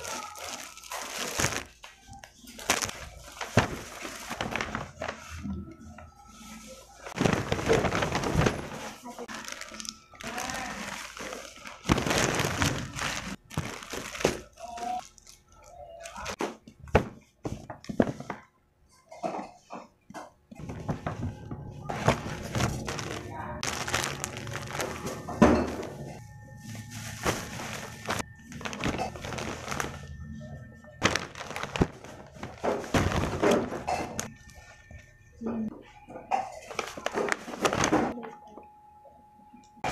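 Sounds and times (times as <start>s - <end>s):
plastic packaging crinkling: 0.0s - 5.6s, 6.4s - 16.4s, 20.6s - 30.3s, 31.0s - 34.4s, 36.5s - 38.2s.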